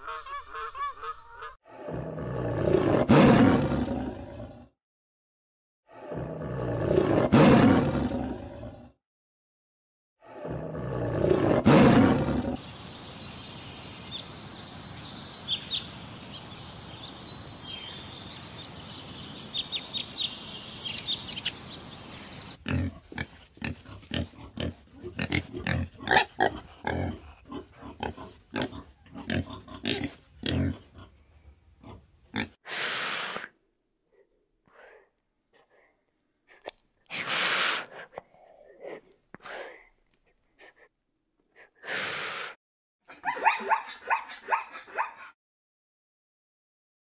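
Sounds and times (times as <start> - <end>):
tiger roar: 1.7 - 4.7, 5.9 - 9.0, 10.2 - 12.6
wild boars grunting: 22.4 - 31.2.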